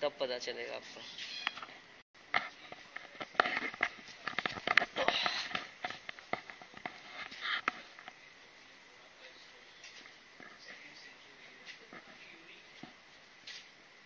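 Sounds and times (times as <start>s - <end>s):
footsteps clicking and tapping: 2.4s - 8.2s.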